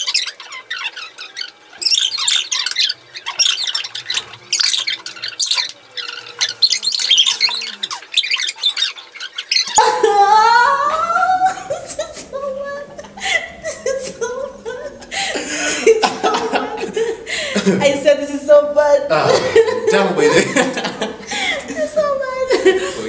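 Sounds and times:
bird-like chirping and squawking: 0:00.0 - 0:16.6
loud laughter: 0:09.6 - 0:18.3, 0:19.1 - 0:23.0.

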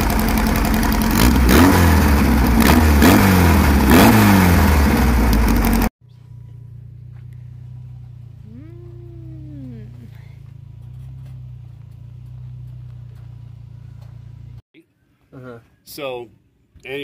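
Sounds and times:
car engine idling and revving: 0:00.0 - 0:14.6
low hum: 0:04.6 - 0:14.6.

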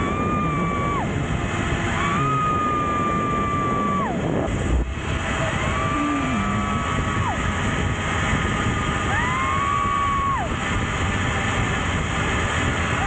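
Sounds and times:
wind rushing over microphone: 0:00.0 - 0:13.0.

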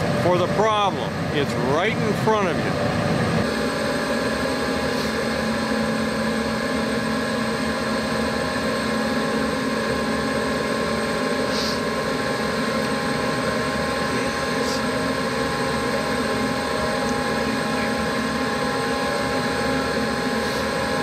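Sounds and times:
gas furnace humming: 0:00.0 - 0:21.0.

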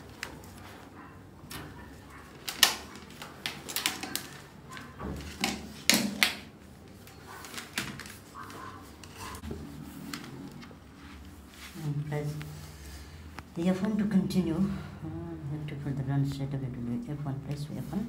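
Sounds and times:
cables and keyboard rattling: 0:00.0 - 0:09.4.

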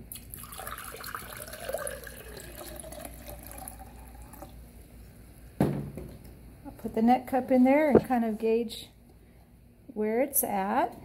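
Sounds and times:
water pouring into glass jar: 0:00.3 - 0:04.6.

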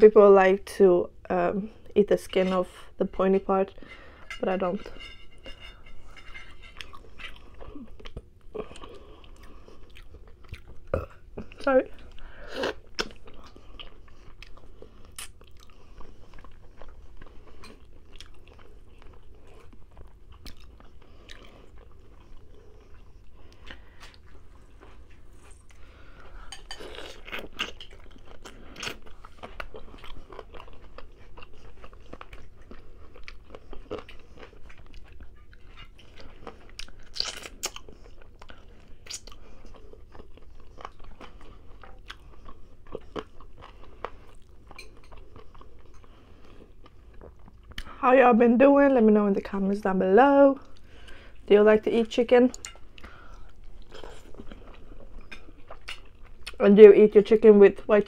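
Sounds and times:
chewing and biting chicken: 0:26.9 - 0:45.9.

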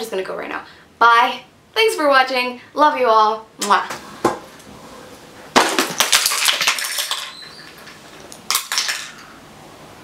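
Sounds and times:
small hard objects clattering: 0:05.6 - 0:09.2.

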